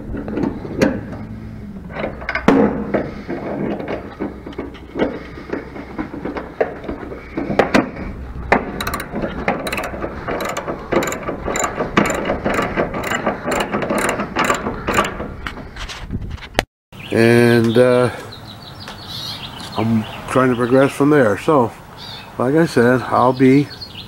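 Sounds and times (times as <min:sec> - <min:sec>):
ratchet wrench clicking: 0:08.8 - 0:15.1.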